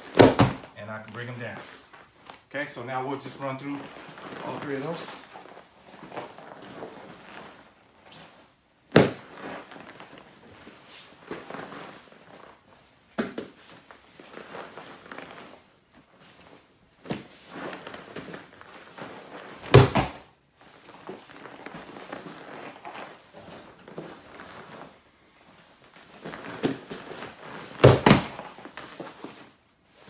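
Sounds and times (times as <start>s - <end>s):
bodies thudding onto foam mats: 0.0s - 0.7s, 8.9s - 12.0s, 17.0s - 24.9s, 26.0s - 29.5s
cloth rustling: 0.0s - 30.0s.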